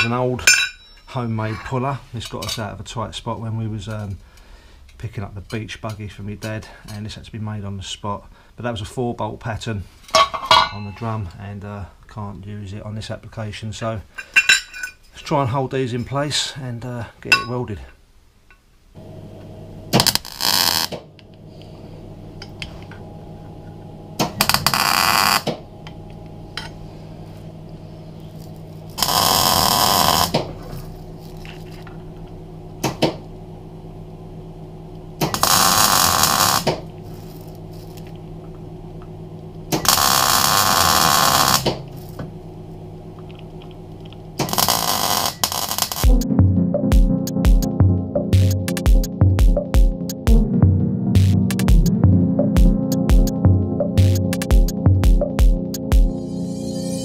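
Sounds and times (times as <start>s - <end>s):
welder hum: 19.0s - 46.2s, 55.4s - 57.0s
welding arc crackle: 19.9s - 21.2s, 24.2s - 25.6s, 28.3s - 31.9s, 35.2s - 38.2s, 39.7s - 42.2s, 43.3s - 46.1s.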